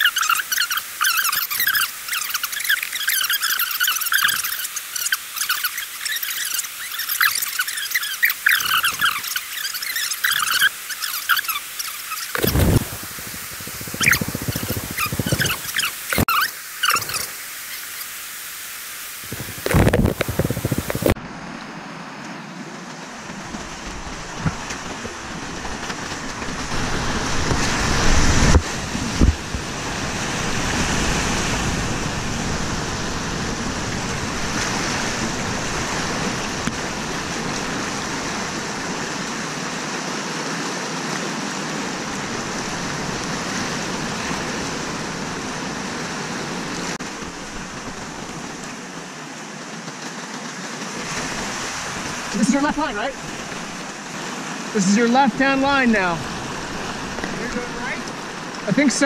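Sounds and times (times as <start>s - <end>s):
paddle strokes in water: 0.0s - 17.3s, 19.2s - 21.2s
whitewater rapids rushing: 0.0s - 21.2s, 23.0s - 59.0s
water thumping against kayak: 12.3s - 17.2s.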